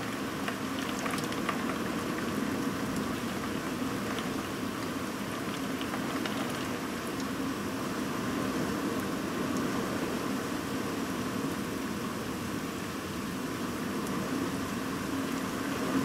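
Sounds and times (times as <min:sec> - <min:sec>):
raindrops ticking close by: 0:00.0 - 0:07.6
heavy rain: 0:00.0 - 0:16.0.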